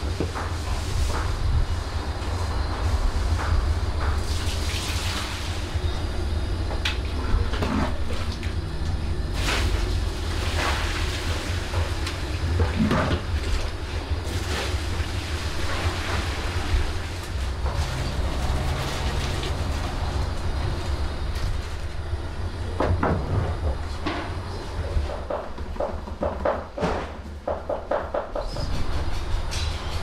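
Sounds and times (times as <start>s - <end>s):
water boiling hard in a pot: 3.9s - 5.9s, 9.3s - 21.9s.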